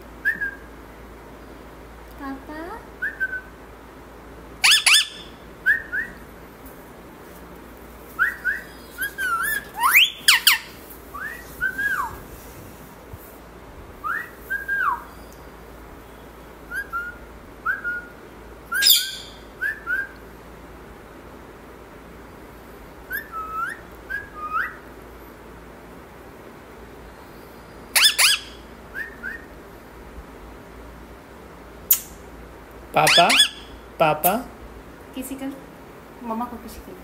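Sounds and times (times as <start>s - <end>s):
parakeet whistled chirps: 3.0s - 3.5s, 4.6s - 6.2s, 8.2s - 12.2s, 14.0s - 15.2s, 16.7s - 18.1s, 18.7s - 20.2s, 23.1s - 24.8s, 27.9s - 29.5s, 33.0s - 33.7s
parakeet shrill calls: 4.6s - 5.9s, 8.2s - 10.8s, 18.7s - 19.5s, 27.9s - 28.6s, 33.0s - 33.8s.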